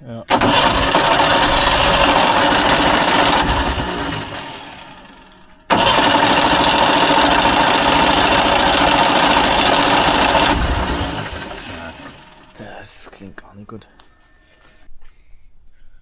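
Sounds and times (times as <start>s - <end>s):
engine cranking on starter: 0.3s - 12.6s.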